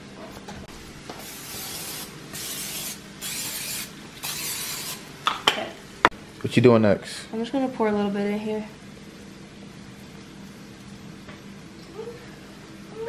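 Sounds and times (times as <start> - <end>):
aerosol spray hissing: 1.2 - 5.0.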